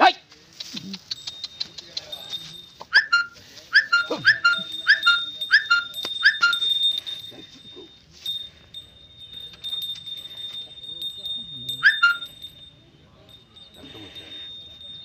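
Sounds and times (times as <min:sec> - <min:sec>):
high yelping animal calls: 0:02.8 - 0:06.9, 0:11.8 - 0:12.4.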